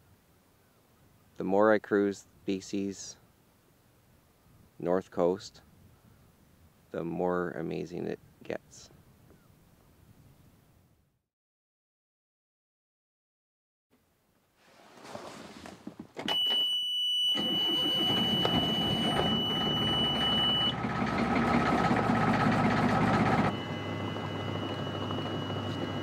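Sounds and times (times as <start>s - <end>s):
warning buzzer tone: 16.3s - 20.8s, 23.5s - 26.0s
boat engine cranking and running: 17.3s - 26.0s.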